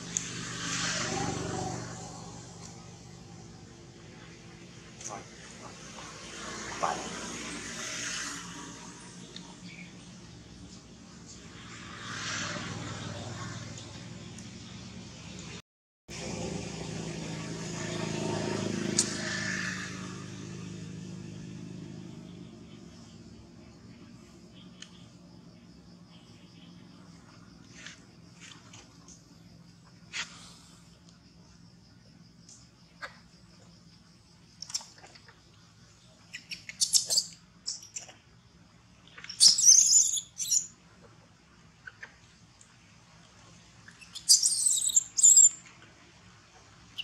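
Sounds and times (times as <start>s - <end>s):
vehicle engine passing: 0.0s - 10.4s, 16.1s - 24.5s
high insect drone: 0.0s - 14.8s, 16.2s - 37.8s
baby monkey squealing: 36.3s - 38.1s, 39.2s - 40.8s, 43.9s - 45.6s.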